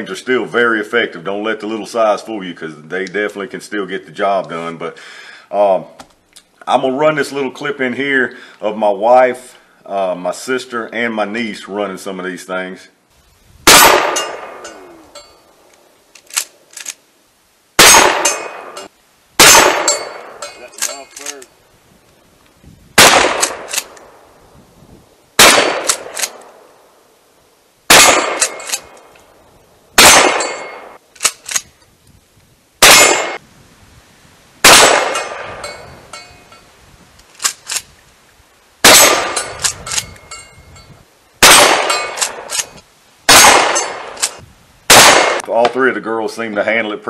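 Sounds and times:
shotgun shots: 13.7 - 14.8, 17.8 - 21.4, 23.0 - 24.0, 25.4 - 26.7, 27.9 - 29.1, 30.0 - 31.4, 32.8 - 33.4, 34.6 - 35.7, 38.8 - 40.1, 41.4 - 42.7, 43.3 - 45.5
shotgun pump metallic clacks: 19.8 - 21.5, 41.8 - 42.8.

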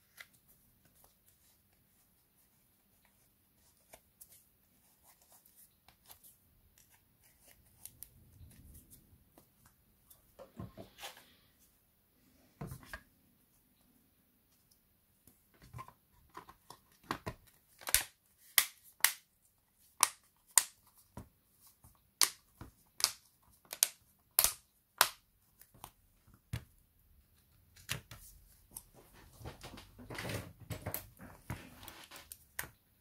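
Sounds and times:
plastic clips clicking and snapping: 23.0 - 25.2.

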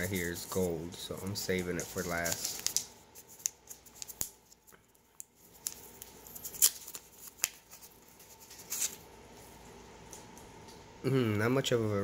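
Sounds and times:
packaging rustling: 1.3 - 9.1.

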